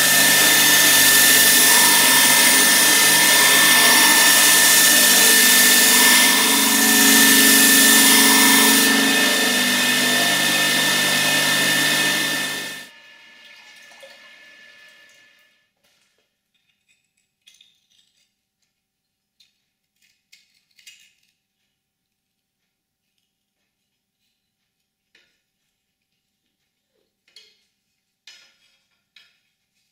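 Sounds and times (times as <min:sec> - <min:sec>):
belt grinder grinding steel: 0:00.0 - 0:12.9.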